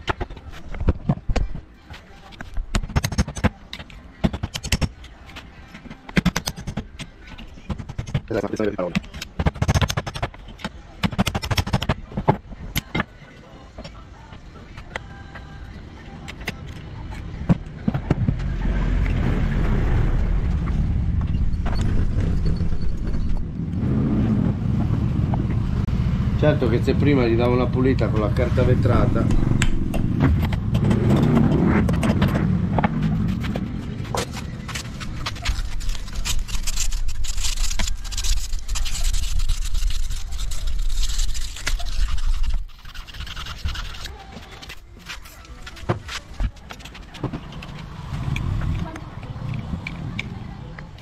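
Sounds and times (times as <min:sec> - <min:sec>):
low rumbling noise: 0:18.1 - 0:37.5
sandpaper scratching metal: 0:33.0 - 0:47.2.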